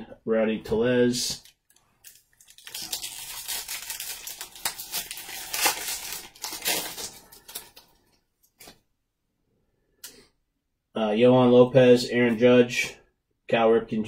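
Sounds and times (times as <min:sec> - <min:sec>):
wrapper crinkling and tearing: 0:01.4 - 0:08.8.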